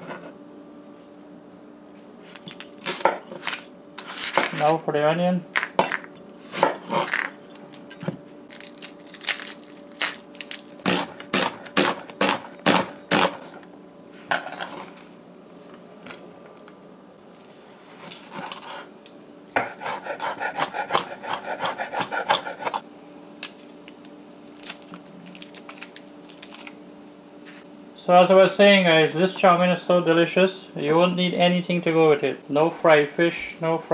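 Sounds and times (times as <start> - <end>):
knife chopping on wooden board: 6.5 - 7.2, 10.8 - 13.5, 19.6 - 22.8.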